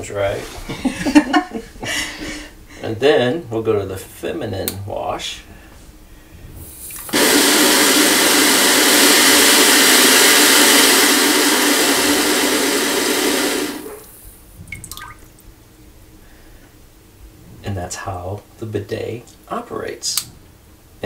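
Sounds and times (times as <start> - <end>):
water jet spraying into toilet bowl: 6.7 - 14.2.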